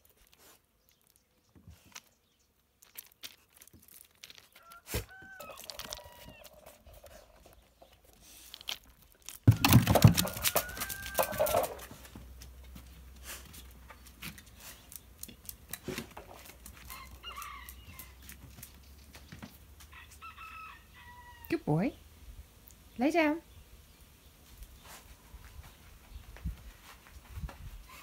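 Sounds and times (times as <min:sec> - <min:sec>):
rooster crowing: 0:04.6 - 0:06.6, 0:09.5 - 0:12.0, 0:16.8 - 0:18.2, 0:19.9 - 0:21.5.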